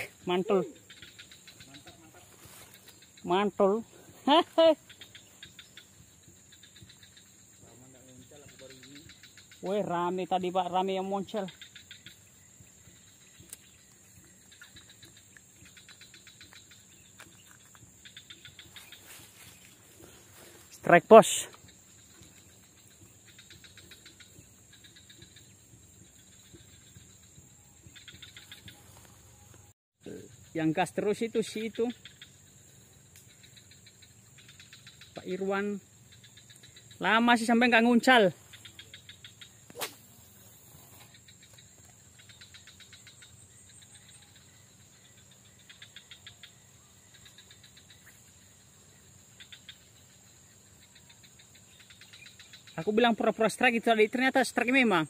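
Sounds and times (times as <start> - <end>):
faint swamp ambience: 0.0 - 55.0
insect chirping in pulsed trills: 0.0 - 55.0.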